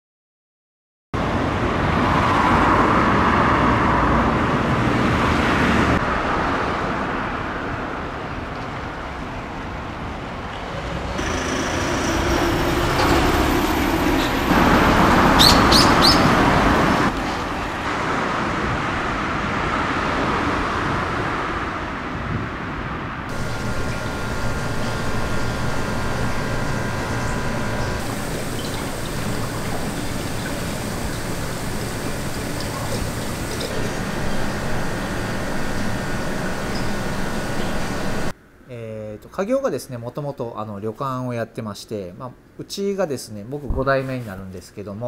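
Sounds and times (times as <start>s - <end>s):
road traffic rushing: 1.2s - 22.3s, 23.3s - 38.3s
bird chirps: 15.4s - 16.4s, 23.4s - 38.0s.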